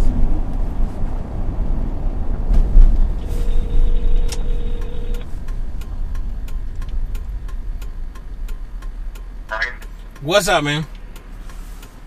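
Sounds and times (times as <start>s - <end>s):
vehicle road and engine noise: 0.0s - 12.0s
telephone ringback tone: 3.2s - 5.3s
light regular ticking: 4.0s - 12.0s.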